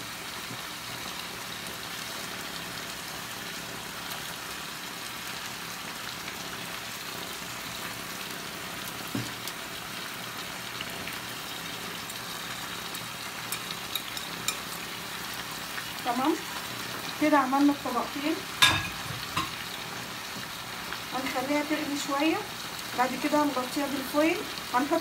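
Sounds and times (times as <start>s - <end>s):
roasting pan sizzling: 0.0s - 25.0s.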